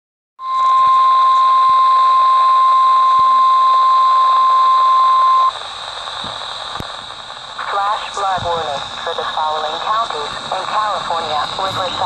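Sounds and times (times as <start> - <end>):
high warning alarm tone: 0.4 - 5.6
radio hiss: 0.4 - 12.0.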